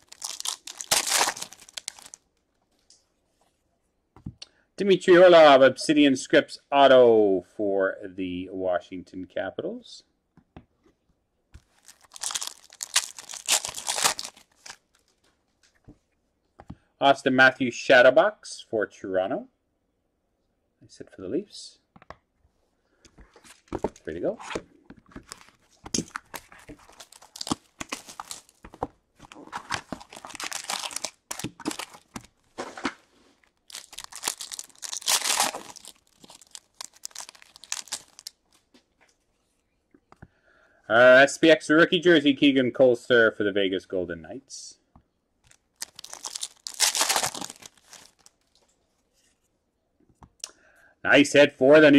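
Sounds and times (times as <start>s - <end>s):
foil wrapper crinkling: 0.0s - 2.3s, 11.6s - 15.2s, 25.3s - 38.7s, 45.4s - 48.6s.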